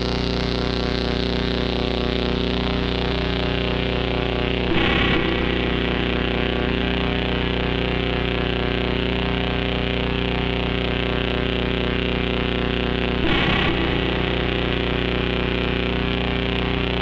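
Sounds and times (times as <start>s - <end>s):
distorted buzzing synth drone: 0.0s - 17.0s
low pulsing tone: 3.9s - 9.3s, 13.2s - 17.0s
burst of noise: 4.7s - 7.6s, 13.2s - 16.3s.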